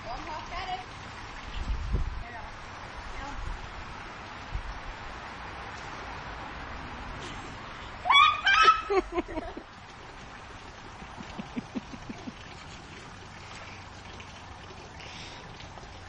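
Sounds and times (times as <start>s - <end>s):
high-pitched animal cries: 8.1s - 9.0s.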